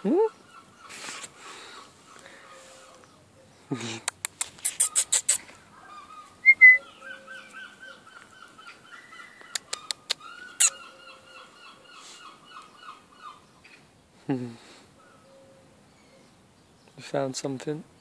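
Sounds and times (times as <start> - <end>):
sharp clicks: 4.0 - 5.5, 9.4 - 10.7
bird calling repeated notes: 4.3 - 13.8
high bird chirp: 4.4 - 13.8.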